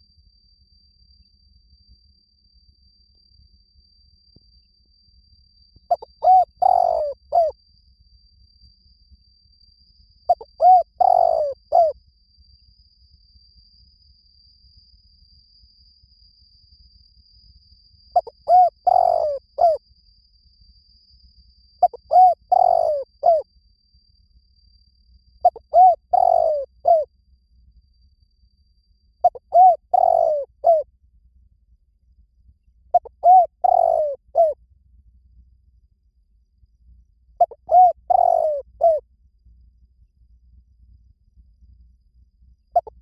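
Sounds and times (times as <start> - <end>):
dove cooing: 5.9 - 7.5, 10.3 - 11.9, 18.2 - 19.8, 21.8 - 23.4, 25.4 - 27.1, 29.2 - 30.8, 33.0 - 34.6, 37.4 - 39.0, 42.8 - 43.0.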